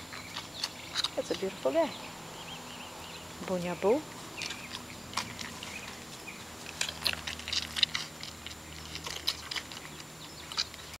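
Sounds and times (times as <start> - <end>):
puppies suckling smacking clicks: 4.4 - 11.0.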